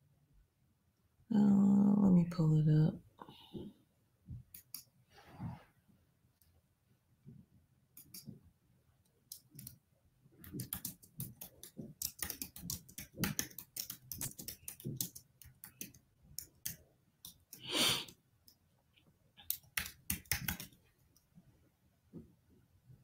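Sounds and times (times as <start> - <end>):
keyboard typing clicks: 10.5 - 17.6, 19.4 - 20.8
short hissing breath: 17.6 - 18.1.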